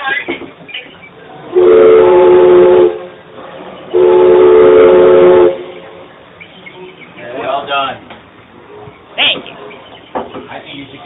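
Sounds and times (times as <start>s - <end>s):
steam whistle blasts: 1.5s - 3.1s, 3.9s - 5.7s.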